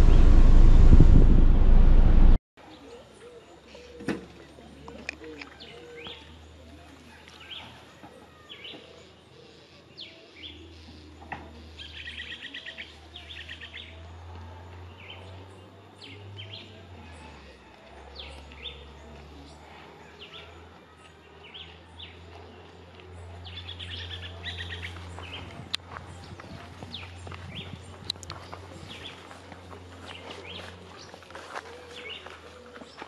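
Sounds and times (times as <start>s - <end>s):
low steady hum: 0.0s - 2.4s
wild birds chirping: 2.6s - 33.0s.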